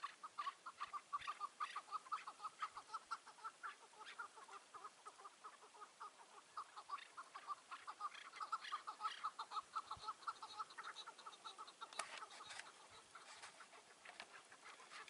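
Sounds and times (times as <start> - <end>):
partridges clucking: 6.8 - 15.0.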